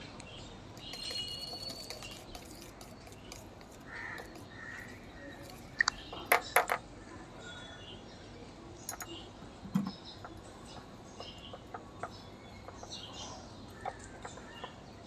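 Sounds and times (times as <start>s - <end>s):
crow cawing: 3.9s - 4.8s.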